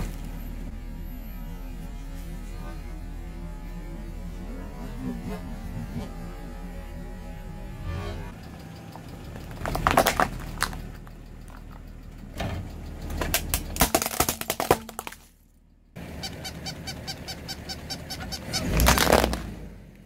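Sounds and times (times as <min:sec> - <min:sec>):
tyre crushing plastic: 0:00.0 - 0:00.4, 0:09.4 - 0:11.6, 0:13.3 - 0:15.4, 0:18.7 - 0:19.5
plastic cracking and crunching: 0:09.4 - 0:11.6, 0:13.3 - 0:15.4, 0:18.7 - 0:19.5.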